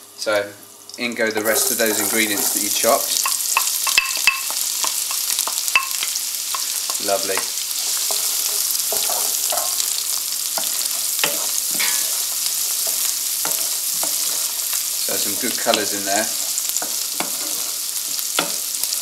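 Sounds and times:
vegetables sizzling in oil: 0:00.0 - 0:19.0
wooden spoon knocking pan: 0:03.1 - 0:09.8.

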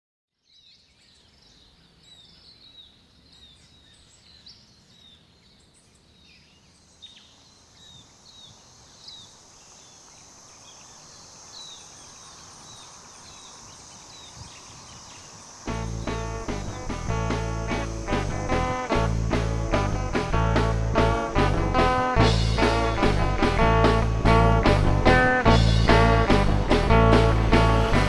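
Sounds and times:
birds chirping: 0:00.4 - 0:28.0
high-pitched insect drone: 0:09.2 - 0:26.3.

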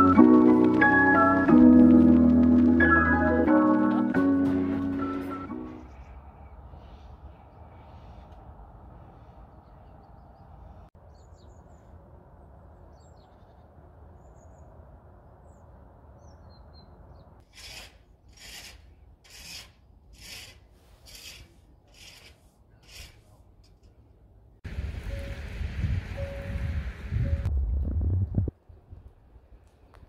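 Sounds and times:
footsteps crunching in snow: 0:00.0 - 0:06.0.

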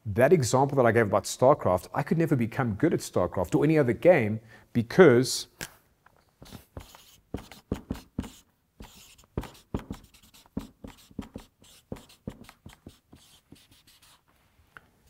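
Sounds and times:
marker pen writing on paper: 0:06.4 - 0:14.3.

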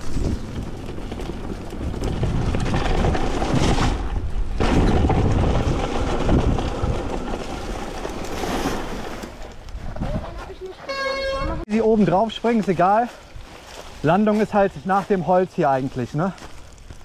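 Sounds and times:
wind rumbling on microphone: 0:00.0 - 0:10.7
bike tyres rustling through leaves: 0:11.9 - 0:17.0.

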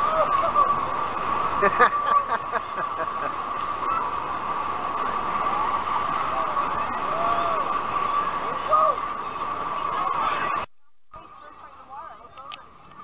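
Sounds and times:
crowd of swimmers' voices: 0:00.0 - 0:13.0
water rushing and sloshing: 0:00.0 - 0:13.0.

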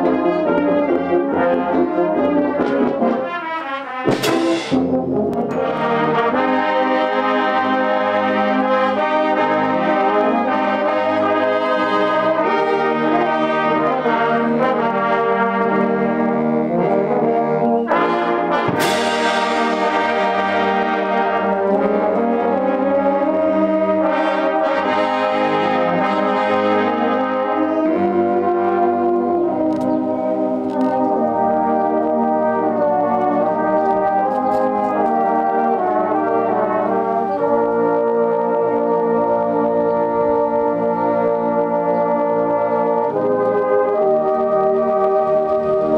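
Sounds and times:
brass band playing: 0:00.0 - 0:45.9
cymbal crash: 0:04.1 - 0:05.0, 0:18.8 - 0:20.0.

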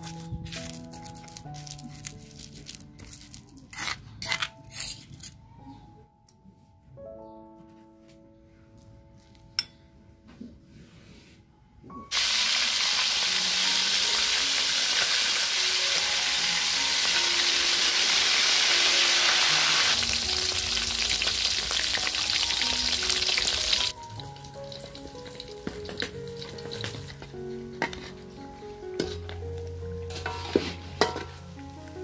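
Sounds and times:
faint background music: 0:00.0 - 0:32.0
fish sizzling in hot oil: 0:12.1 - 0:27.2
wood fire crackling: 0:19.9 - 0:27.3.

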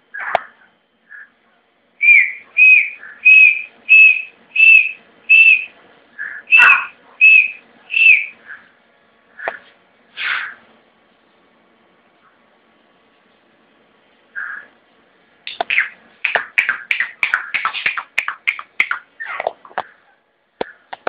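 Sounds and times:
francolin whistled calls: 0:02.0 - 0:08.6
softer lower bird notes: 0:02.0 - 0:08.7.

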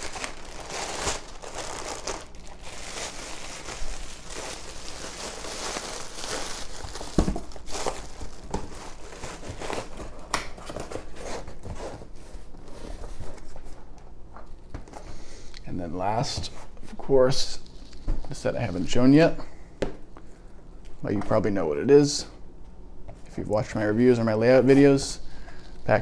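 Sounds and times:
bubble wrap crinkling: 0:00.0 - 0:11.5.

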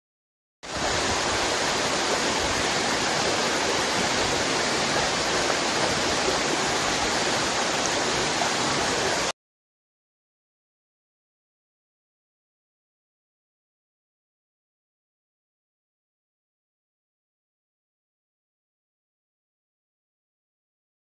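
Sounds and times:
stream water rushing over rock: 0:00.6 - 0:09.3.

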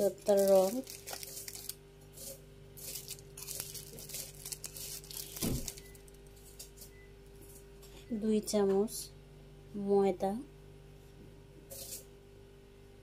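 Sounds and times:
spoon scraping ceramic bowl: 0:11.7 - 0:12.1.

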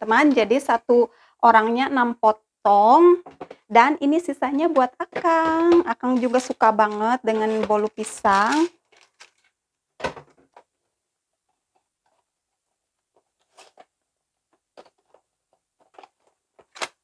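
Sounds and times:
foil trays crinkling and tapping: 0:04.7 - 0:09.5.

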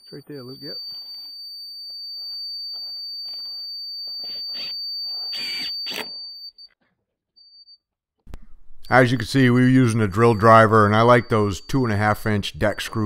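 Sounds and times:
cordless drill driving screws: 0:05.3 - 0:06.2.

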